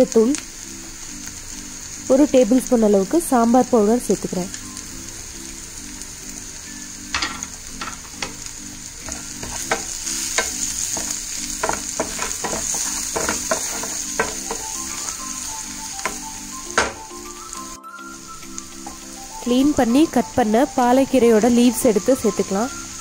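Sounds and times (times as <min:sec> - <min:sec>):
food sizzling in oil: 0:00.0 - 0:23.0
wooden spatula scraping a pan: 0:09.0 - 0:15.4.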